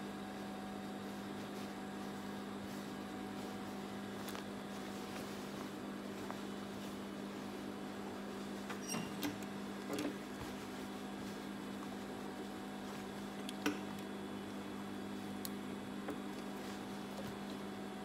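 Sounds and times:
fabric clicks and rustles: 0.4 - 14.0.

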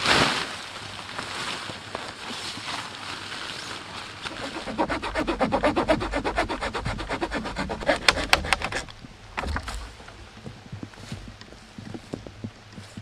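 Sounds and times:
small saw rasping through wood: 4.3 - 8.9.

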